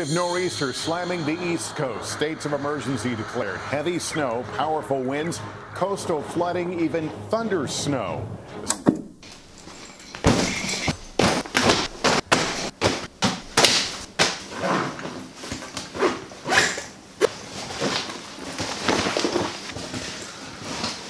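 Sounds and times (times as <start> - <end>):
fabric bag rustling and thumping: 8.9 - 14.5, 17.3 - 21.0.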